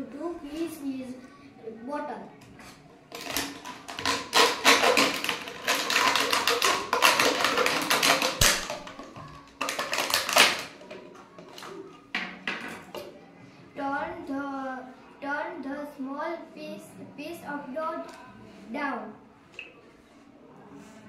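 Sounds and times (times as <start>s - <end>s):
plastic bottle being cut: 3.1s - 11.8s.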